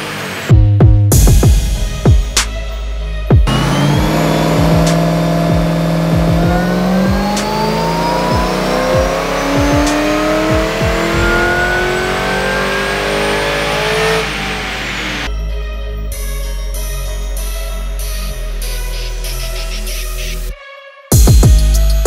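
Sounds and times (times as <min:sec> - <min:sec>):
car engine revving on dyno: 0:00.0 - 0:00.6, 0:03.4 - 0:15.3.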